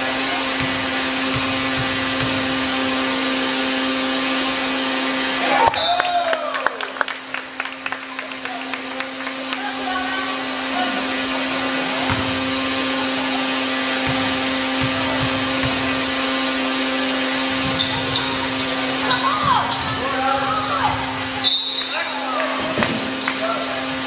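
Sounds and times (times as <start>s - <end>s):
ball bouncing knocks: 14.0s - 16.0s.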